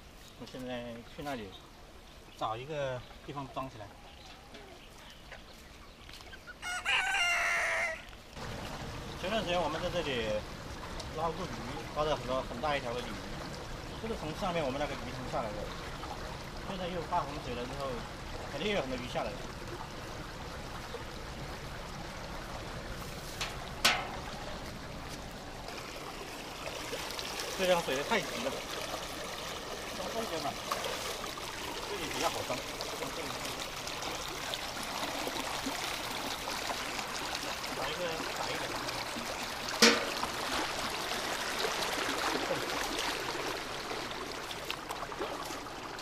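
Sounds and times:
floodwater rushing along channel: 6.5s - 46.0s
sharp knock: 39.8s - 40.2s.

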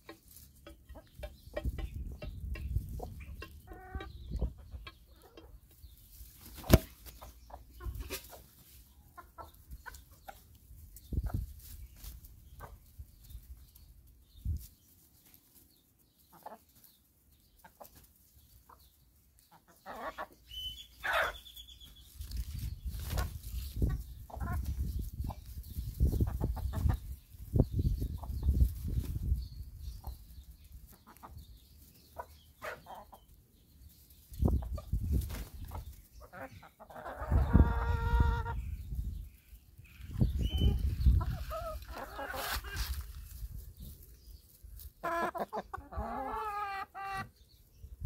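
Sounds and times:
hens clucking softly: 0.0s - 5.9s, 6.5s - 11.5s, 16.3s - 21.4s, 22.4s - 29.4s, 32.0s - 33.4s, 34.4s - 38.9s, 40.0s - 43.4s, 44.8s - 47.4s.

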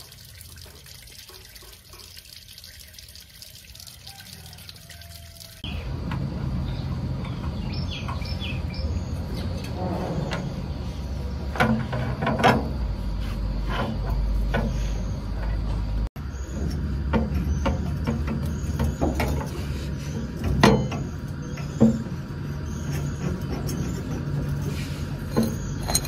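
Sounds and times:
knocks and clatter: 11.5s - 13.0s, 16.6s - 22.3s.

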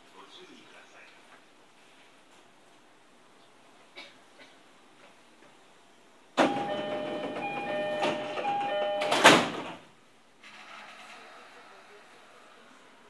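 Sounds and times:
two-tone door chime: 6.4s - 9.5s
sliding doors closing with bang: 6.4s - 12.6s.

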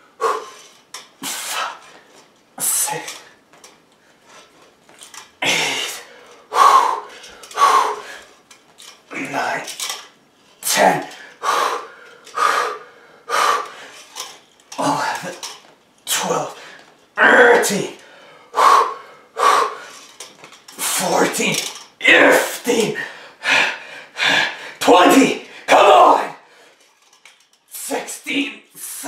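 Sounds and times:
man breathing hard and grunting: 0.0s - 0.6s, 5.4s - 8.3s, 10.6s - 14.0s, 16.6s - 20.0s, 22.9s - 24.8s.

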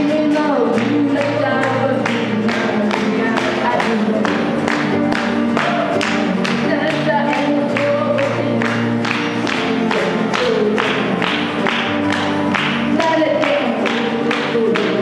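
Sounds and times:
woman singing: 0.0s - 4.6s, 6.1s - 8.9s, 9.5s - 11.3s, 12.8s - 15.0s
acoustic guitar: 0.0s - 15.0s.

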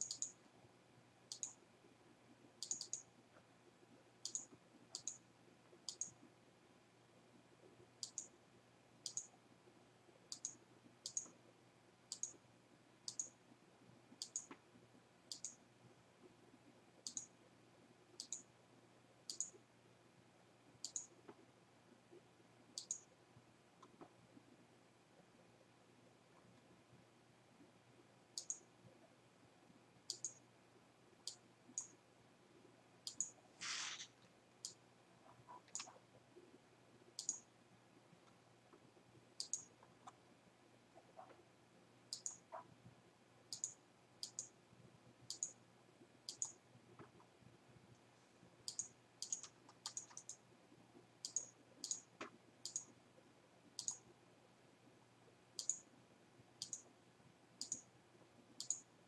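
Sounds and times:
computer mouse clicking: 0.0s - 0.4s, 1.3s - 1.6s, 2.6s - 3.1s, 4.2s - 5.2s, 5.8s - 6.3s, 8.0s - 8.4s, 9.0s - 9.4s, 10.3s - 11.4s, 12.1s - 12.4s, 13.0s - 13.4s, 14.1s - 14.6s, 15.3s - 15.6s, 17.0s - 17.4s, 18.2s - 18.5s, 19.3s - 19.6s, 20.8s - 21.4s, 22.8s - 23.1s, 28.4s - 28.7s, 30.1s - 30.4s, 31.2s - 32.0s, 33.0s - 36.1s, 37.2s - 37.5s, 39.4s - 40.2s, 42.1s - 42.7s, 43.5s - 44.5s, 45.3s - 45.6s, 46.3s - 47.1s, 48.7s - 50.4s, 51.2s - 53.0s, 53.8s - 54.1s, 55.6s - 55.9s, 56.6s - 56.9s, 57.6s - 57.9s, 58.5s - 58.9s
scraping click: 33.6s - 34.2s.

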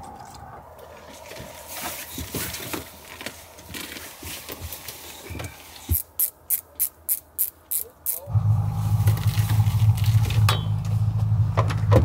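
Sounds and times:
knocks and thumps on wooden porch: 11.5s - 12.0s.

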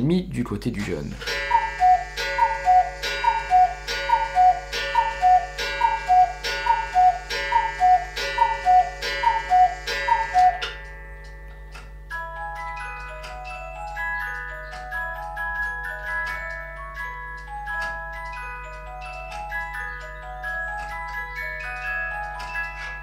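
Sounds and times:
held chords: 1.0s - 23.0s
tick-tock beat of high notes: 1.2s - 11.9s.

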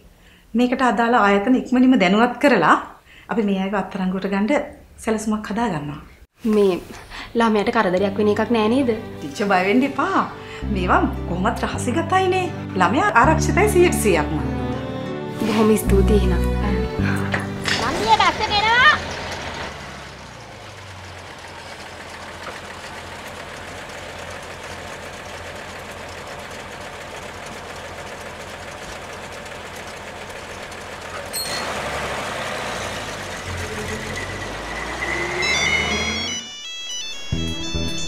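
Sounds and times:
music: 7.5s - 19.0s, 35.5s - 38.0s
bus engine running: 7.6s - 38.0s
street noise: 16.0s - 23.8s, 30.7s - 38.0s.

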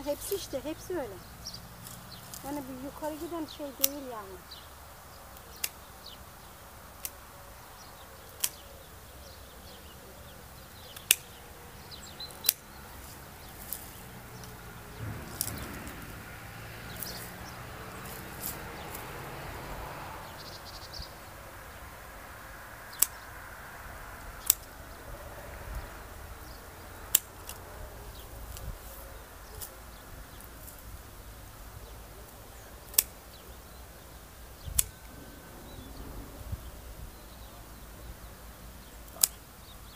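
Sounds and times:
pruning shears snipping: 0.0s - 7.3s, 8.3s - 8.7s, 10.4s - 19.4s, 22.8s - 23.4s, 24.2s - 24.9s, 27.0s - 31.0s, 32.3s - 35.2s, 38.8s - 39.7s.

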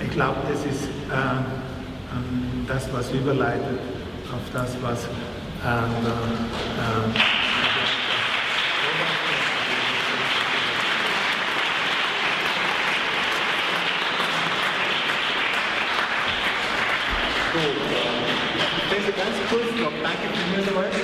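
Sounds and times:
audience applauding: 6.5s - 21.0s.

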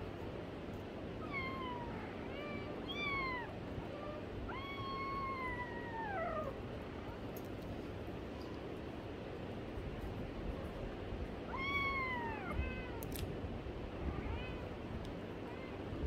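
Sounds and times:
kitten meowing: 11.5s - 13.1s.

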